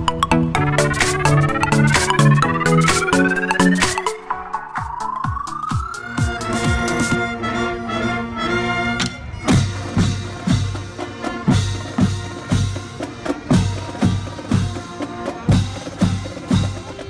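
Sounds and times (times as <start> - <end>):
brass holding notes: 6.0 - 13.6.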